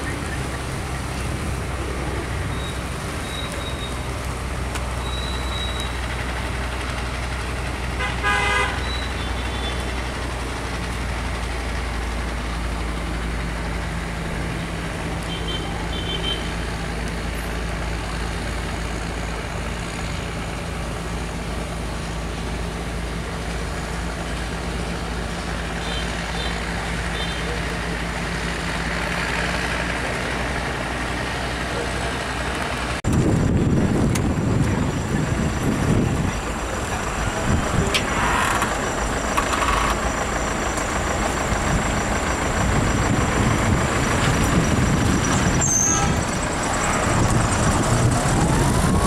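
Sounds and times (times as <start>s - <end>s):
diesel engine drone: 0.0s - 49.0s
boat horn toot: 7.9s - 9.8s, 15.2s - 16.6s, 25.7s - 27.6s.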